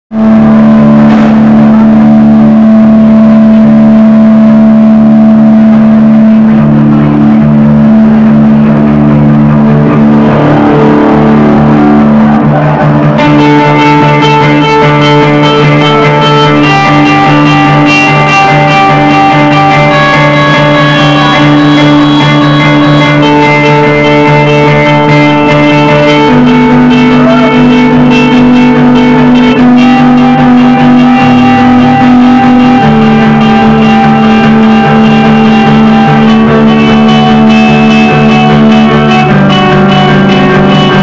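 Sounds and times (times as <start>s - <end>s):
distorted electric guitar and bass drone: 0.1s - 41.0s
drum kit: 7.6s - 41.0s
cymbal-like crash: 9.6s - 14.5s.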